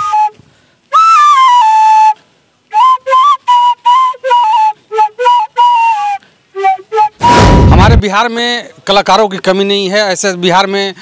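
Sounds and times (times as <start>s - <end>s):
bamboo flute notes: 0.0s - 8.0s.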